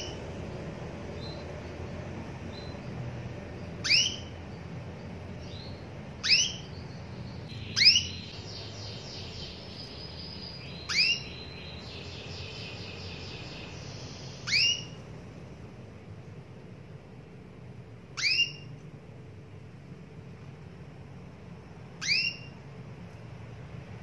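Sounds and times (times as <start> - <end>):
canary calls: 0.0 - 0.5, 1.1 - 15.1, 18.0 - 18.9, 21.8 - 22.7
rapid bird twittering: 0.0 - 15.1, 18.1 - 18.8, 21.9 - 22.7.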